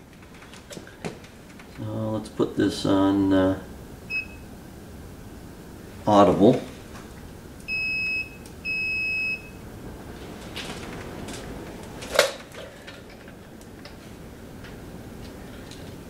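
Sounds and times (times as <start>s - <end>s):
multimeter high-pitched beeps: 7.7s - 9.6s.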